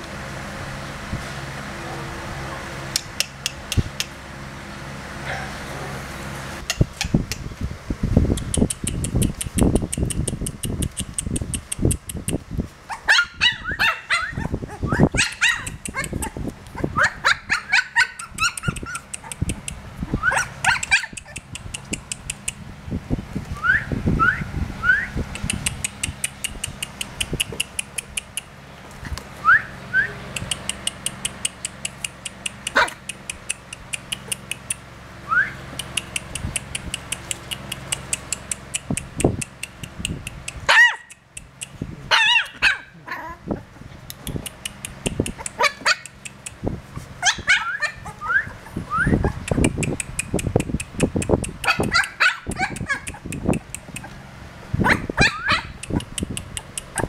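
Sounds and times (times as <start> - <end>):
puppies yelping and whimpering: 12.9 - 19.4, 20.1 - 21.5, 42.1 - 43.8, 45.4 - 46.2, 47.2 - 49.6, 51.7 - 54.2, 54.9 - 55.8.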